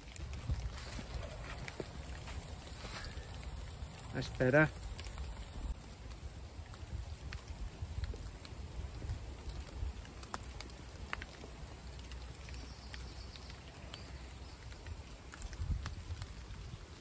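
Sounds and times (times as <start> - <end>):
wood fire crackling and popping: 0.0 - 17.0
wind buffeting microphone: 0.2 - 4.1, 15.4 - 17.0.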